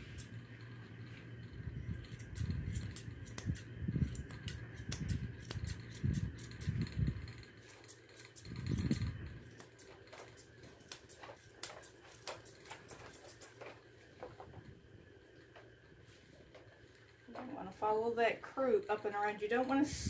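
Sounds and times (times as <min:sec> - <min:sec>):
shears snipping through coat: 0:00.0 - 0:00.4, 0:01.8 - 0:13.8.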